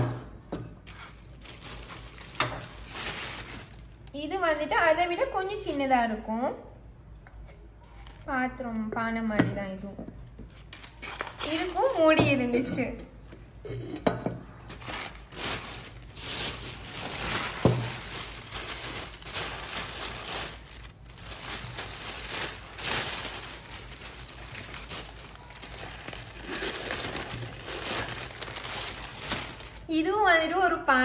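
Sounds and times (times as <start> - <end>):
newspaper and plastic bag rustling: 0.8 - 4.3, 10.6 - 12.2, 14.5 - 30.2.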